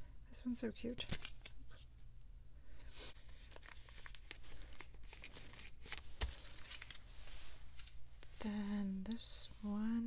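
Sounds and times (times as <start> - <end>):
plastic sleeves crinkling and sliding: 3.2 - 8.4.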